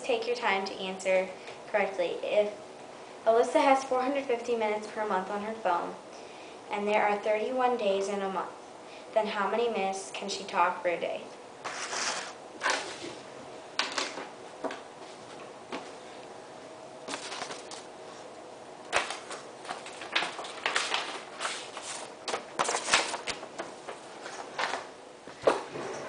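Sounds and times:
paper rustling and crinkling: 11.7 - 13.2, 17.1 - 18.3, 18.9 - 24.9.

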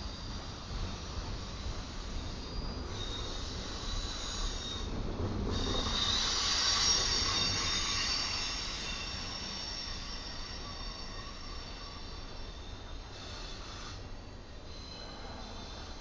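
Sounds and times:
train wheels squealing: 0.0 - 16.0.

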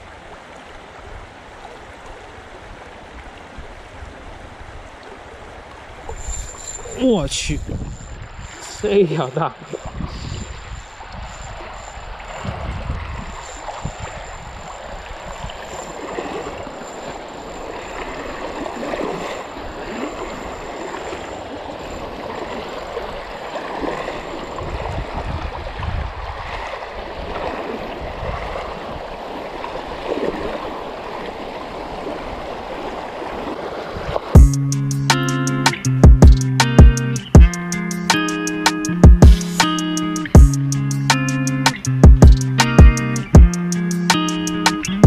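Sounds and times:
shallow river water flowing: 0.0 - 35.6
guitar music: 34.4 - 45.0.

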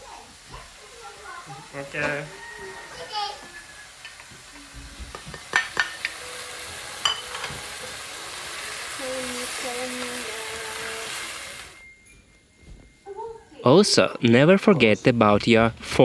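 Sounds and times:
food sizzling in wok: 0.0 - 12.2.

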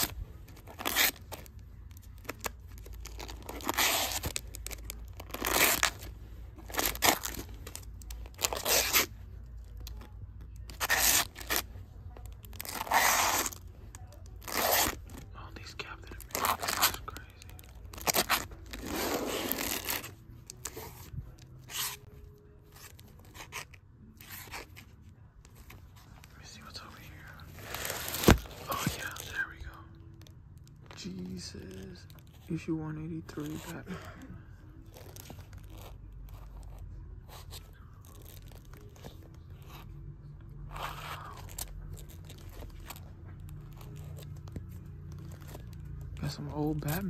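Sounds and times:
plastic sleeves crinkling: 0.0 - 32.6, 33.4 - 39.8, 40.8 - 47.0
plastic sleeves rustling: 16.0 - 29.4.

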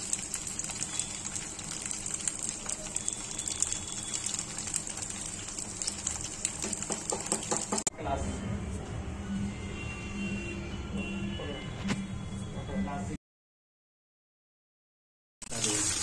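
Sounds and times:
food sizzling in hot oil: 0.0 - 7.9, 15.4 - 16.0.

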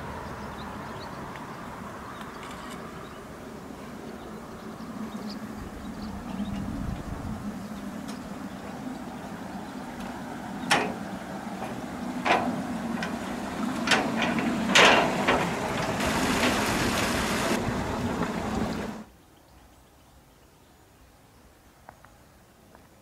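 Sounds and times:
steady rushing noise: 3.3 - 19.1.

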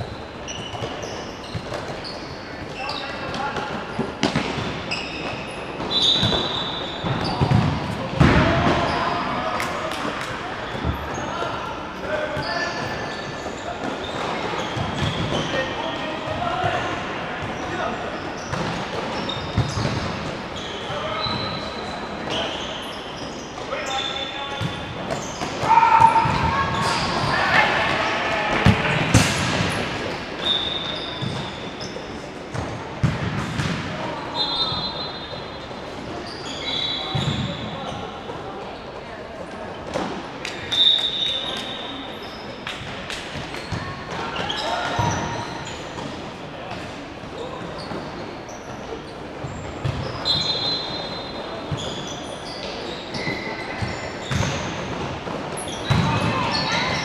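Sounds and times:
sneakers squeaking on court floor: 0.0 - 9.5, 10.6 - 39.0, 39.7 - 57.0
ball kicked and bouncing on court: 3.3 - 4.8, 6.2 - 8.9, 32.5 - 34.0, 49.4 - 50.2, 53.8 - 56.3.

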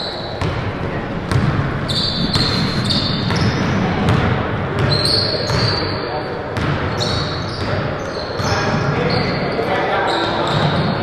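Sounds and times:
game noise in gym hall: 0.0 - 11.0
basketball bouncing on wooden floor: 0.4 - 5.7, 6.6 - 7.8.

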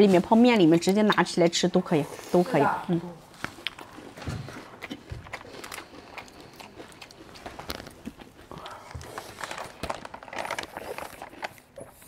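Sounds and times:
biting and chewing: 3.2 - 12.0.

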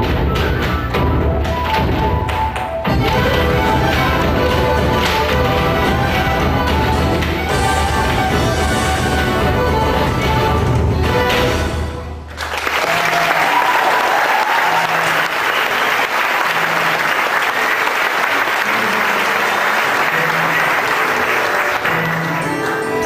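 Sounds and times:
audience applause: 12.3 - 23.0.

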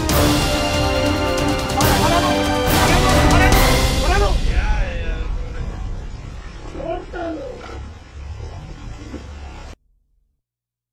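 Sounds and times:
low rumbling noise: 2.1 - 10.1.

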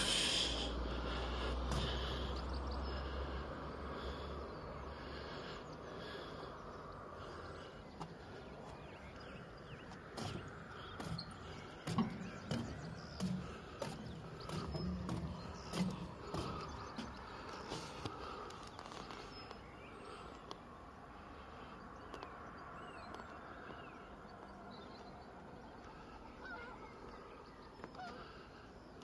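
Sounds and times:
footsteps on a path: 0.0 - 4.3, 7.2 - 20.4.

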